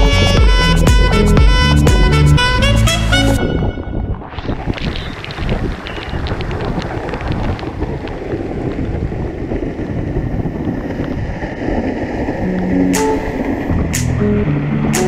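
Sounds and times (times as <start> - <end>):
waterfall rushing: 11.6 - 15.0.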